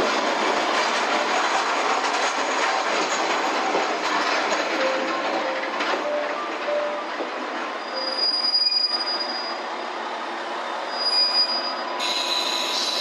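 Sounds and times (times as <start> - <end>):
diesel railcar rolling past: 0.0 - 13.0
high-pitched wheel squeals: 7.8 - 9.8, 10.8 - 13.0.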